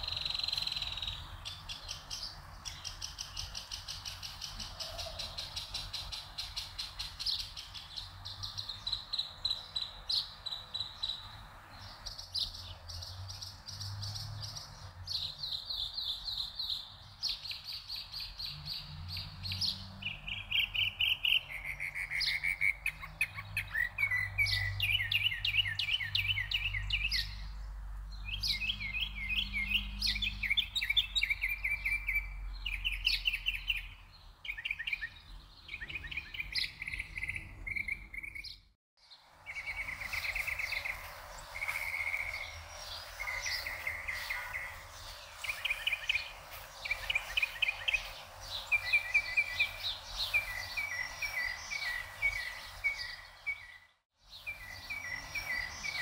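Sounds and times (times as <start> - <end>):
songbirds trilling: 0.0 - 56.0.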